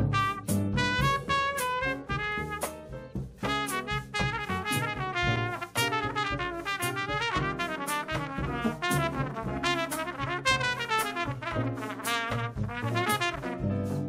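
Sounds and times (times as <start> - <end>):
trumpet playing fast line: 0.0 - 2.8, 3.4 - 14.0
drums with cymbal strokes: 0.0 - 14.0
piano: 0.0 - 14.0
plucked upright bass: 3.2 - 10.4.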